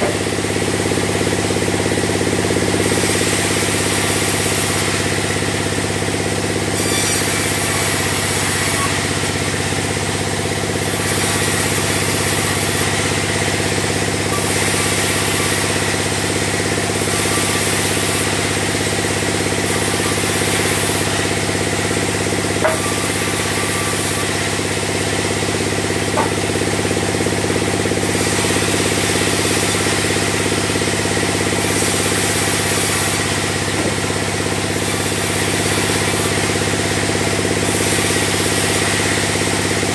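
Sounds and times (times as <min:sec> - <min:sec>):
band saw machine drone: 0:00.0 - 0:39.9
blade hissing in wood: 0:02.8 - 0:09.4, 0:10.8 - 0:31.0
sharp knocks: 0:22.6 - 0:23.0, 0:26.2 - 0:26.4.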